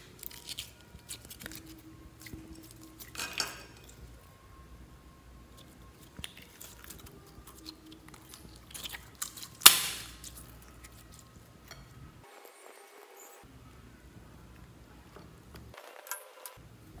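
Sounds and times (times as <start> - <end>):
slime squelching crackles: 0.0 - 4.2, 5.4 - 11.4
slime air pop: 9.6 - 10.2.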